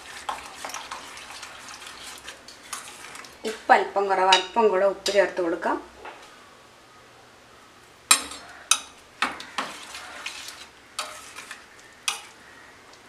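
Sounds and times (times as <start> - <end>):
spoon clinking and scraping pot: 0.0 - 3.4, 8.1 - 12.4
wet stirring: 0.0 - 3.7, 8.1 - 13.0.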